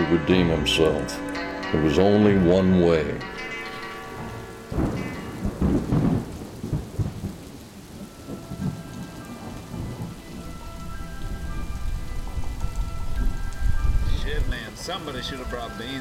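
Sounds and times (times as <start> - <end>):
faint sustained music tones: 0.0 - 16.0
rain pattering: 0.0 - 16.0
rolling thunder: 3.8 - 16.0.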